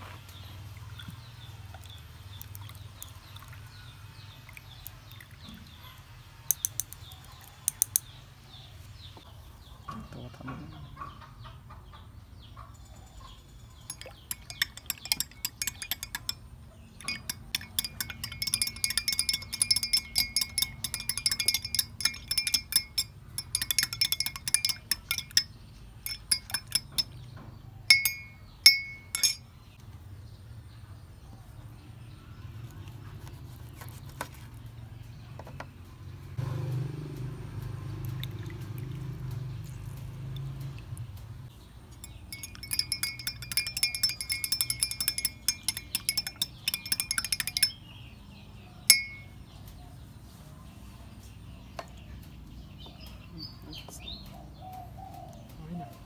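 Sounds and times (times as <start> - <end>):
spoon clinking against glass mug: 13.8 - 27.3, 27.9 - 29.5, 42.0 - 48.0, 48.9 - 49.4.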